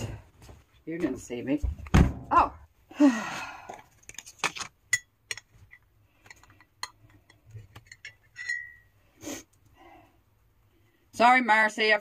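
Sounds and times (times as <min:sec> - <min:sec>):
metal spoon clinking against mug: 0:06.3 - 0:08.9.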